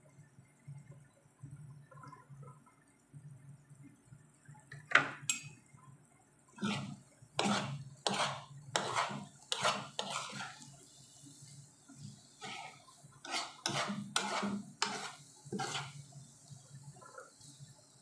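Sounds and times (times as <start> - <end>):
metal spoon scraping pan: 6.6 - 10.8, 12.4 - 16.1.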